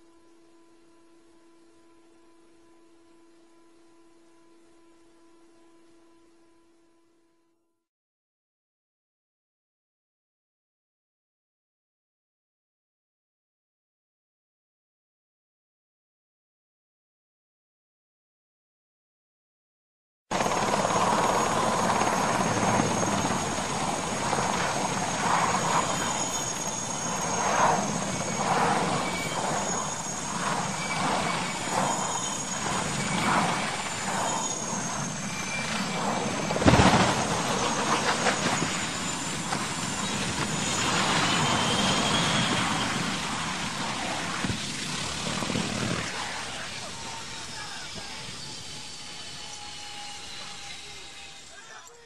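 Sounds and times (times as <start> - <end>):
helicopter rotor and turbine: 20.3 - 52.0.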